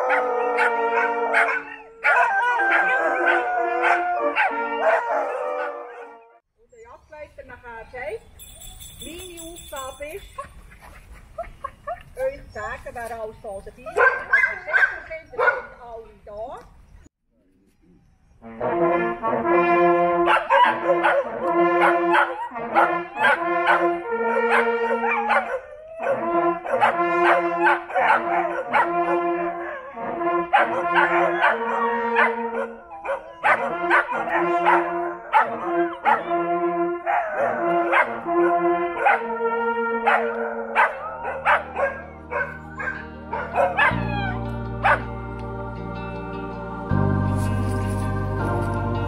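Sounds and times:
hunting horns playing fanfare: 0.0 - 6.4, 18.4 - 49.0
slow organ-like music: 17.7 - 22.1, 28.9 - 49.0.

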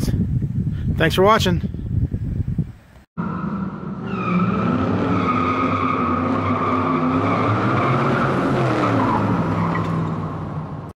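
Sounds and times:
tires squealing: 3.2 - 10.8.

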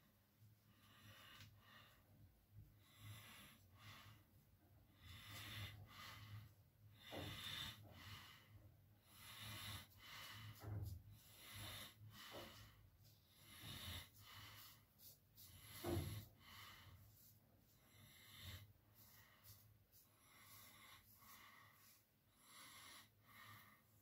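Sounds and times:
breathing through the nose: 5.0 - 24.0.

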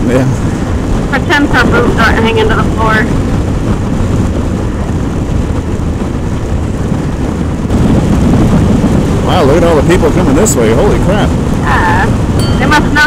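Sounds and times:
low engine rumble: 0.0 - 13.0
wind rushing: 0.0 - 13.0.

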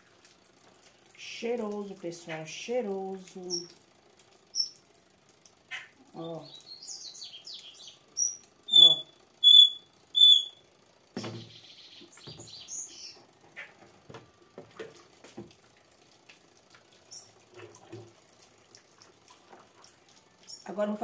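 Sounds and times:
liquid soap splashing: 0.0 - 2.2, 14.6 - 21.0
bird chirping: 4.5 - 4.8, 6.4 - 10.6, 11.2 - 13.3.

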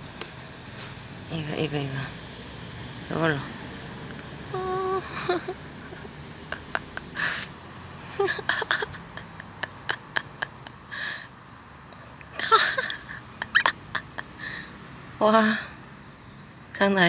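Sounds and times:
person huffing breathily: 7.0 - 7.6, 14.3 - 14.8.

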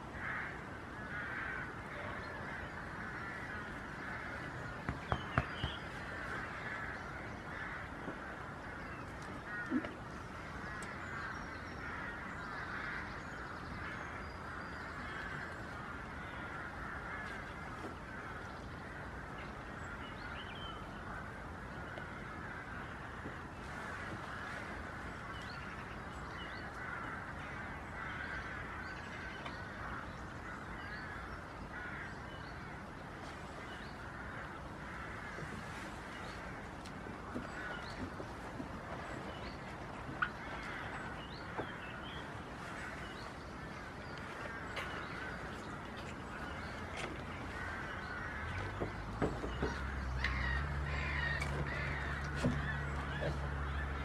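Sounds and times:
crow-like calls: 0.0 - 54.0
flock of birds chattering: 0.0 - 54.0
sharp knocks: 4.8 - 5.8.

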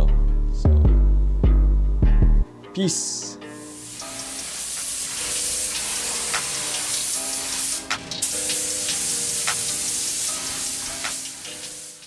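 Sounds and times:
steady hiss: 3.1 - 12.0.

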